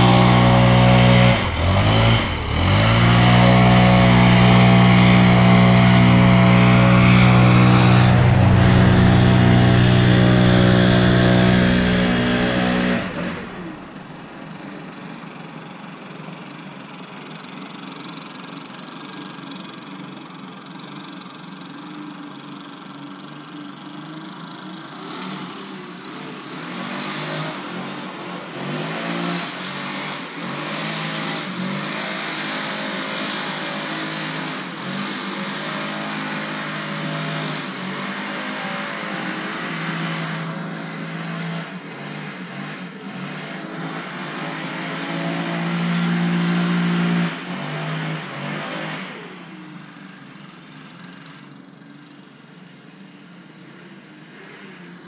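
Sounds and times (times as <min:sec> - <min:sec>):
rush of air: 0:00.0 - 0:14.3
leaf blower engine: 0:00.0 - 0:55.0.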